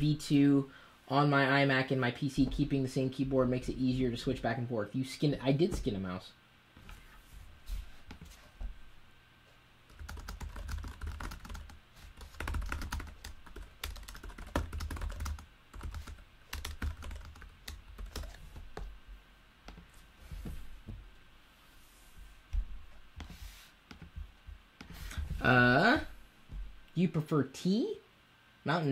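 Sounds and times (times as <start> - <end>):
fast typing on keyboard: 9.9 - 18.6.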